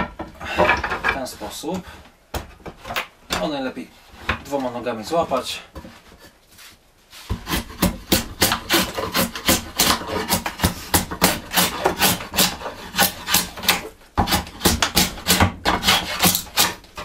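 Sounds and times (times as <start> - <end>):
drawknife scraping wood: 7.2 - 17.0.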